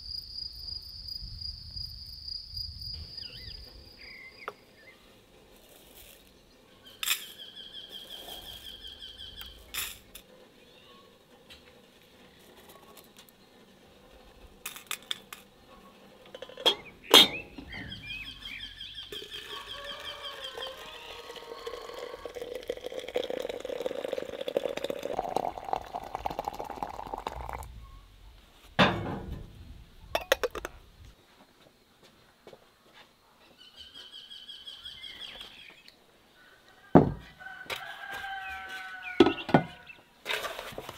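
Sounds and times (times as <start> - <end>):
birds chirping: 2.6 - 5.2, 6.2 - 9.8, 15.6 - 21.6, 33.4 - 36.6
water pouring into glass teapot: 19.2 - 27.7
glass and metal clinks: 30.2 - 30.7.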